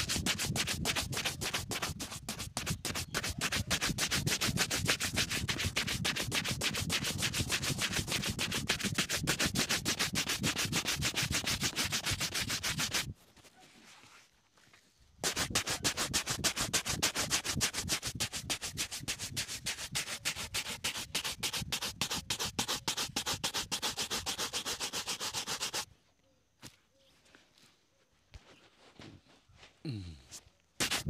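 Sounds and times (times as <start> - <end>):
shoe brush scrubbing leather: 0.0 - 13.1, 15.2 - 25.9, 30.8 - 31.0.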